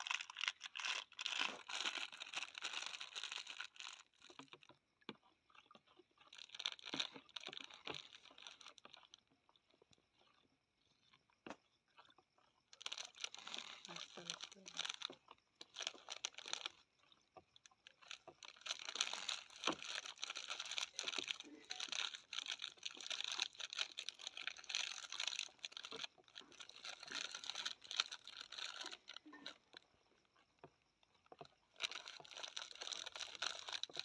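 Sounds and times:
plastic packet crinkling: 0.0 - 4.6, 6.3 - 9.2, 12.8 - 16.8, 17.8 - 29.8, 31.8 - 34.0.

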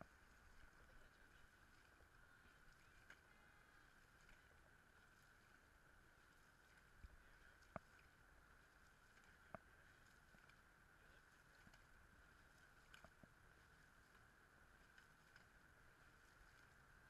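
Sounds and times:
faint steady hiss: 0.0 - 17.0
faint clicks: 12.6 - 15.6.

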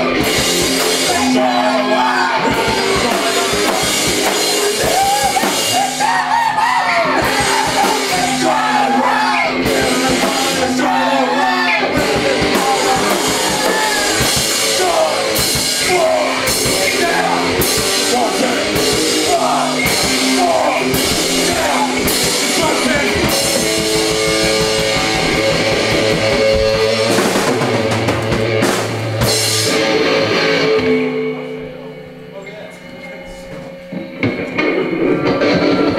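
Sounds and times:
drum kit: 0.0 - 31.4, 33.5 - 35.9
bass guitar: 0.0 - 35.9
electric guitar: 0.0 - 35.9
wavering vocal: 0.9 - 23.8.

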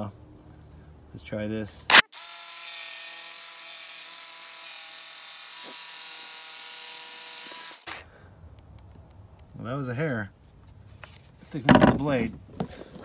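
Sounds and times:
jigsaw cutting wood: 1.9 - 8.0.

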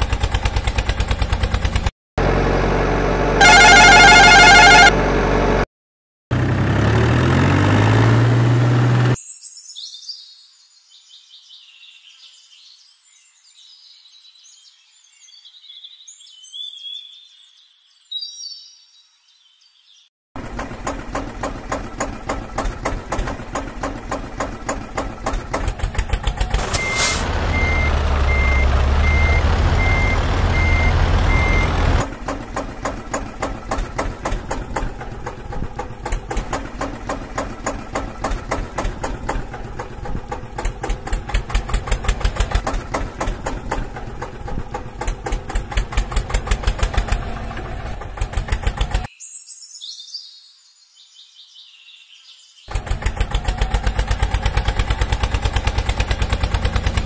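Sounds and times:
fast engine pulses: 0.0 - 5.6, 20.4 - 49.1, 52.7 - 57.0
beeping tone: 3.4 - 5.0, 26.7 - 31.8
low engine rumble: 20.4 - 49.1.

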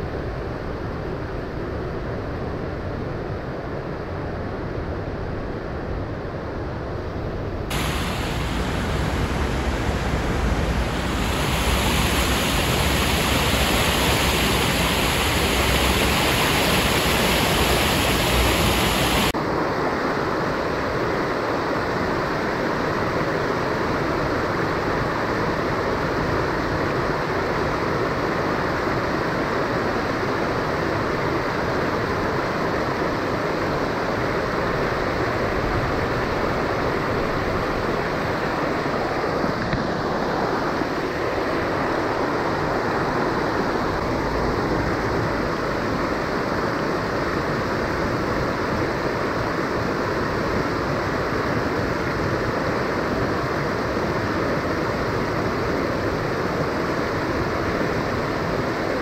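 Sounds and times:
flowing creek water: 7.7 - 19.3.

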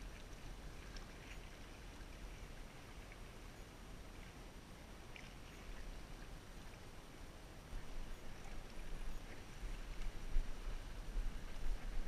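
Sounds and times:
faint ticks: 0.0 - 2.3, 7.7 - 12.0
wind rumbling on microphone: 0.0 - 12.0.

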